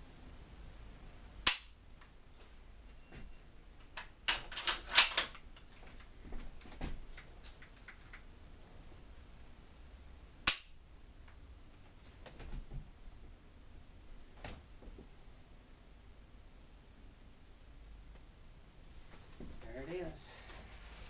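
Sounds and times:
trigger dry fire snap: 1.4 - 1.8, 10.5 - 10.8.

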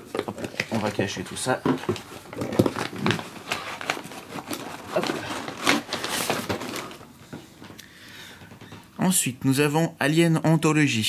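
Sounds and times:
packing paper rustling: 0.0 - 7.8
cardboard scraping: 0.4 - 7.0.

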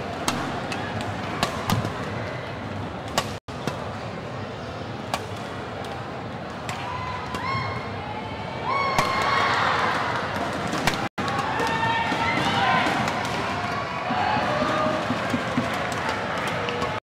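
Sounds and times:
arena crowd noise: 0.0 - 17.0
rackets hitting shuttlecock: 0.2 - 2.2, 3.0 - 3.9
crowd calling out: 11.2 - 17.0.

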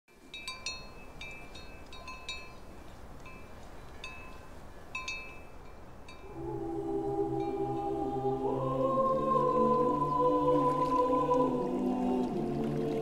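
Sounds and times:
faint steady hiss: 0.1 - 13.0
small metal chimes tinkling: 0.2 - 6.3
low held musical tone: 0.2 - 13.0.

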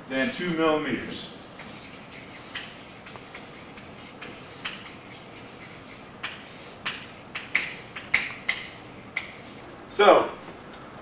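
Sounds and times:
chalk scratching on chalkboard: 1.5 - 9.6.

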